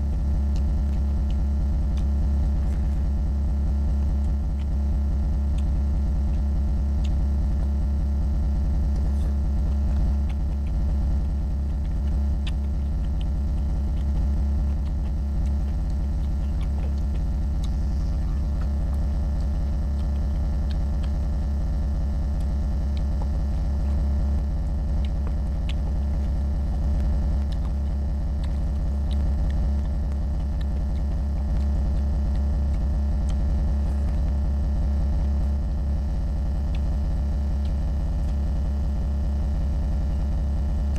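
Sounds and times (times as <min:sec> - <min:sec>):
steady low hum: 0:00.0 - 0:40.9
man chewing: 0:08.8 - 0:35.5.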